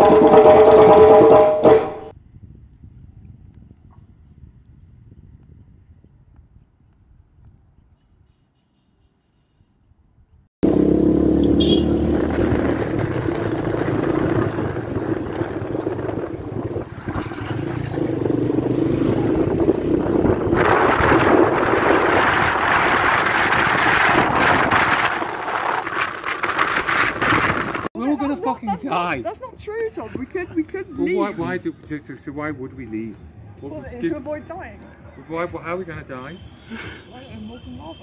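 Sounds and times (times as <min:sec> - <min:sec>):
wind on microphone: 0:02.2 - 0:08.2, 0:12.1 - 0:27.9
moving vehicle rumble: 0:10.6 - 0:27.9.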